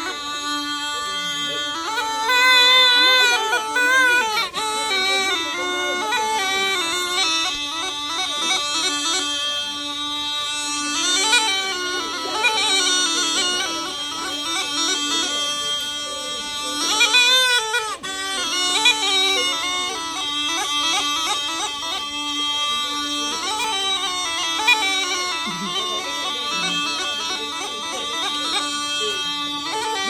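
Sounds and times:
gourd pipe melody over drone: 0.0s - 30.0s.

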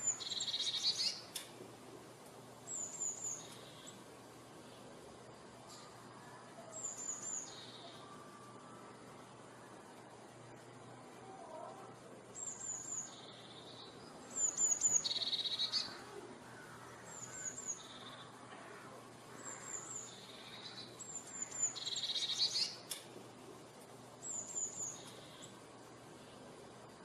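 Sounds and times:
bird singing with buzzing trill: 0.0s - 1.3s, 2.7s - 4.0s, 6.7s - 8.6s, 12.4s - 16.1s, 17.0s - 18.4s, 19.4s - 22.9s, 24.2s - 25.6s.

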